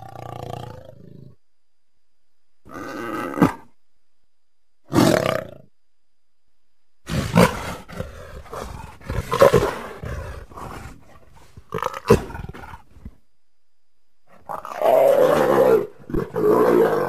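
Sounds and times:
animal-like roaring calls: 14.4 - 17.0.

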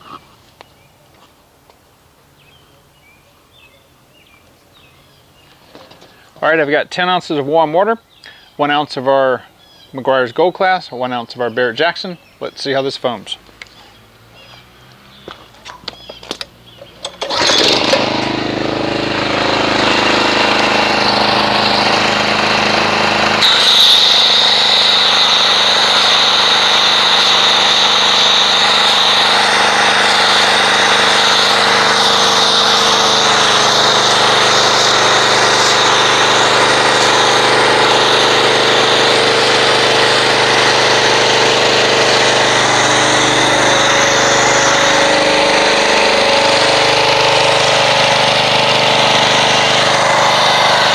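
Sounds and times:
pressure washer engine running: 13.6 - 50.9
foam cannon spraying hiss: 22.8 - 39.3.

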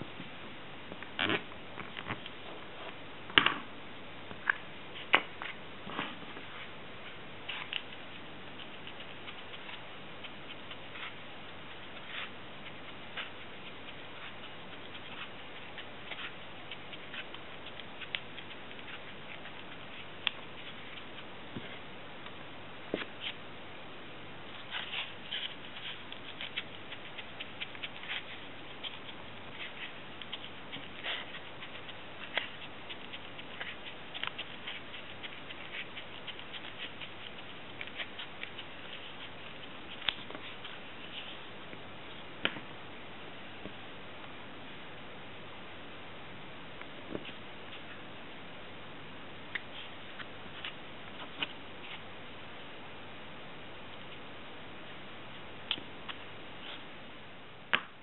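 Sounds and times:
hands clicking and scratching crafts: 7.1 - 21.8, 24.6 - 41.4.

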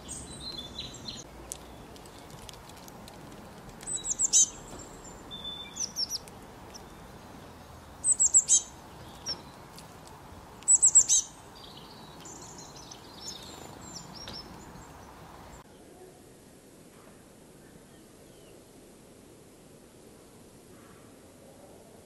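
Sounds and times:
songbird chirping: 0.0 - 16.3.

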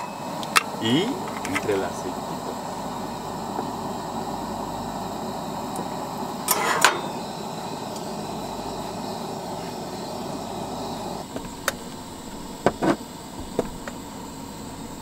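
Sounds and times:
hot pan hissing: 0.0 - 15.0.

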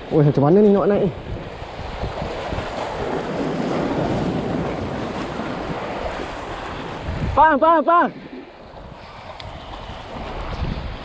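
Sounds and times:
sea waves washing: 0.0 - 11.0
wind on microphone: 0.0 - 11.0.

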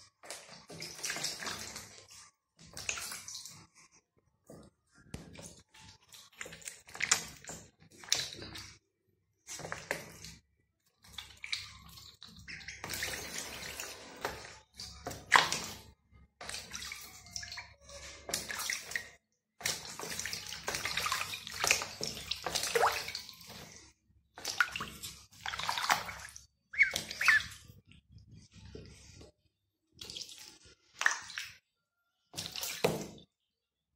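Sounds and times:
ducklings splashing in water: 0.2 - 2.0, 11.0 - 23.7, 24.4 - 27.8.

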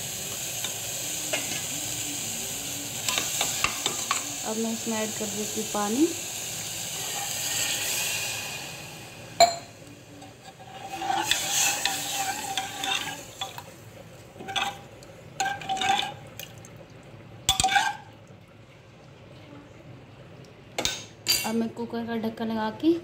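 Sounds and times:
water pouring with a hiss: 0.0 - 9.4
ladle scraping a metal pot: 10.3 - 13.6, 14.4 - 14.8, 15.4 - 16.2.

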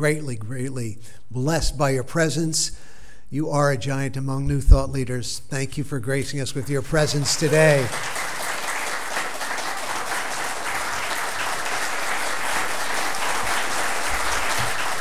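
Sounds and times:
crowd applauding: 7.1 - 15.0.

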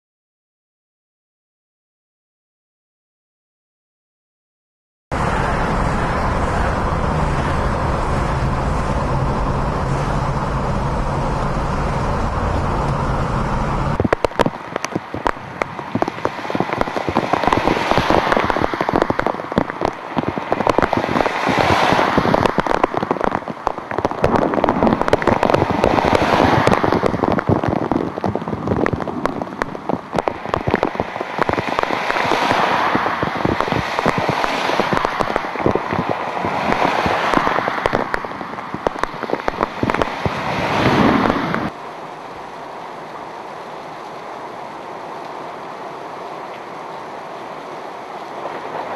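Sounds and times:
car engine and road rumble: 5.1 - 48.9
cars swishing past on wet road: 5.1 - 48.9
heavy rain: 5.1 - 48.9.

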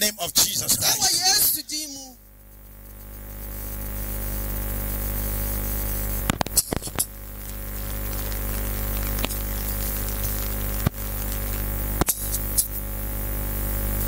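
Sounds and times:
electrical mains hum: 0.0 - 14.0
crackling clicks: 5.5 - 12.8.

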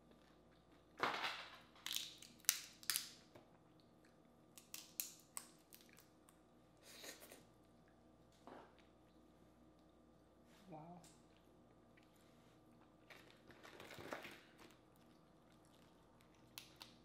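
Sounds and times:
crawfish shell cracking: 1.8 - 3.2, 4.6 - 6.4, 15.6 - 17.0.

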